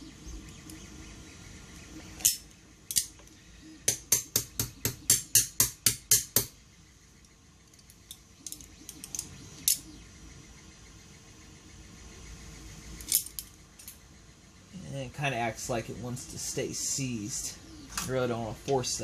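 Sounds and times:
metallic clicks of hand tools: 2.2 - 3.2.

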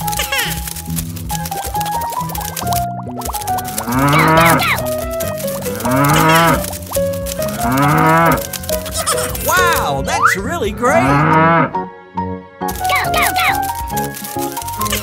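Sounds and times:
upbeat children's music: 0.0 - 11.4, 12.4 - 15.0
cattle mooing: 3.8 - 5.0, 5.6 - 6.8, 7.5 - 9.7, 10.9 - 11.8.

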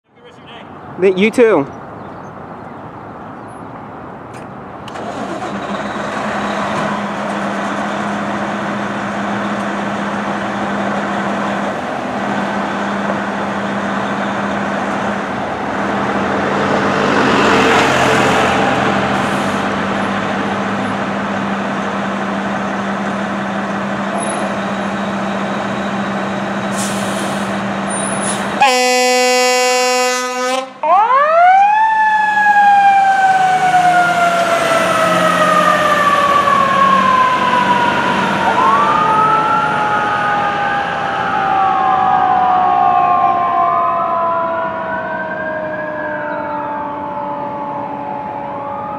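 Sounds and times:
air horn blast: 28.6 - 30.8.

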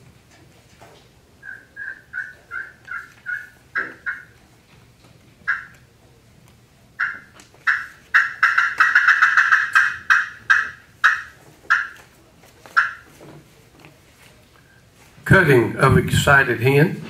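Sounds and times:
turkey call cackles: 1.4 - 4.4, 5.5 - 5.8, 7.0 - 12.0, 12.7 - 13.1.

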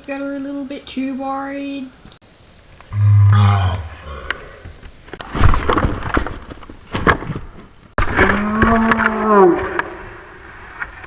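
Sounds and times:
drawn-out falling yell: 2.9 - 4.7.

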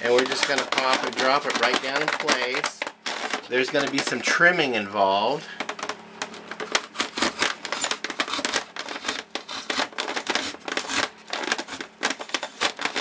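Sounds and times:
styrofoam squeaking and crunching: 0.0 - 4.5, 6.5 - 13.0.

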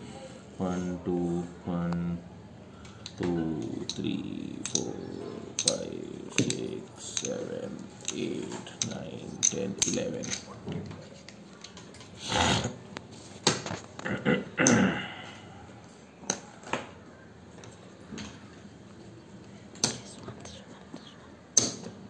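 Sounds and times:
poker chips clicking: 2.9 - 10.5.

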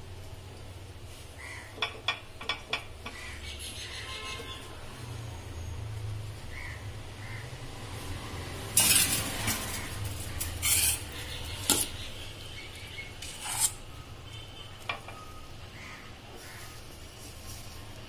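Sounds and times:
metal spoon scraping a pan: 8.7 - 12.1, 13.2 - 13.8.

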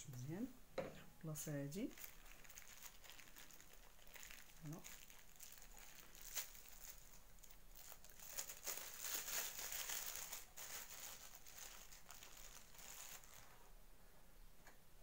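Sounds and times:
plastic bag crinkling: 1.8 - 13.7.

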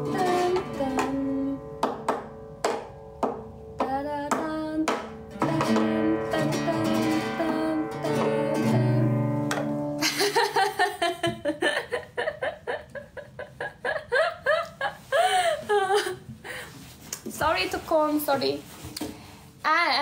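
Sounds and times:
acoustic guitar plucked: 0.0 - 10.0
woman laughing: 10.0 - 16.7.

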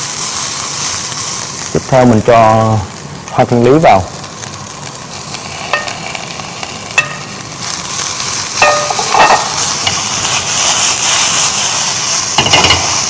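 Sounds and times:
vegetables sizzling in a pan: 0.0 - 13.0
utensil clinking against pan: 8.6 - 10.0.

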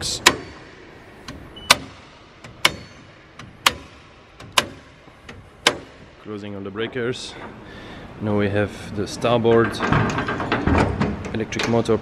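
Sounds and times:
circuit breakers snapping on: 0.0 - 6.3.

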